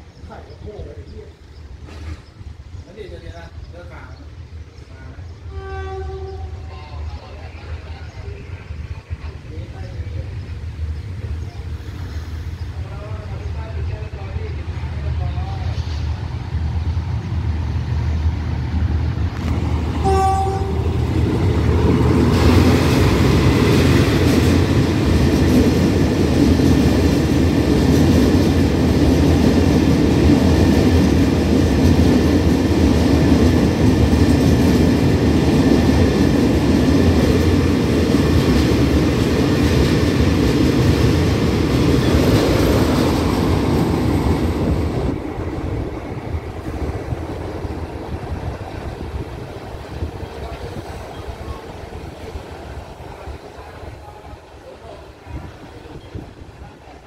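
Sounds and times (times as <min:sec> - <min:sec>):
diesel locomotive engine: 0:00.0 - 0:57.0
train wheels rolling on rails: 0:01.5 - 0:57.0
locomotive horn blast: 0:05.5 - 0:06.7, 0:20.0 - 0:21.1.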